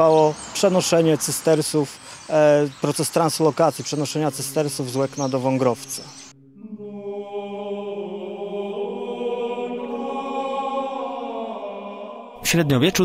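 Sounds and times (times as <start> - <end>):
men chanting: 3.8 - 13.0.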